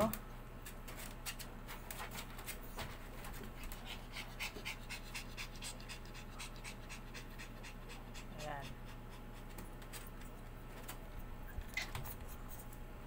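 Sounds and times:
low steady hum: 0.0s - 13.0s
puppy panting: 2.0s - 10.1s, 11.4s - 12.5s.

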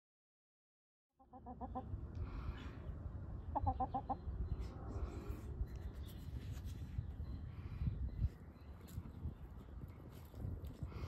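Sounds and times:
hens clucking: 1.2s - 2.0s, 3.4s - 4.6s.

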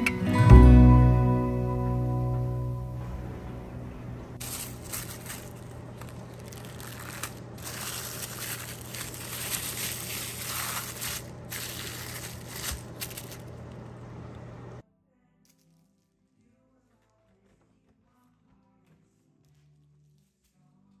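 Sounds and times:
faint low hum: 0.6s - 21.0s
plastic film crinkling: 4.4s - 13.9s.

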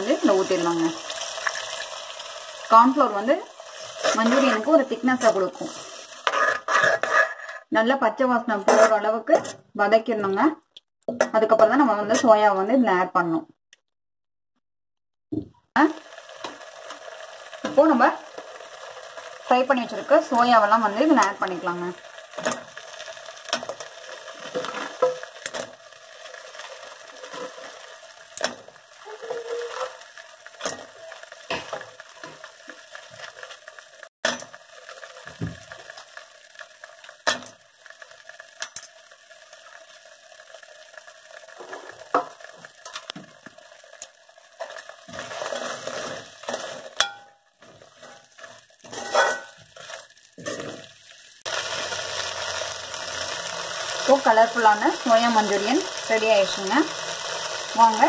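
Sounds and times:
faint sizzle: 0.0s - 7.1s, 15.8s - 58.0s
ladle scraping and clinking on pan: 48.0s - 50.8s.

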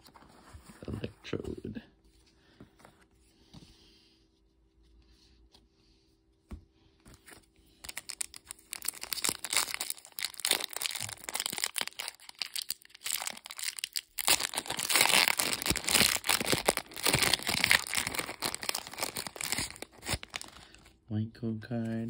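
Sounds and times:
foil wrapper crinkling and tearing: 7.8s - 21.0s.

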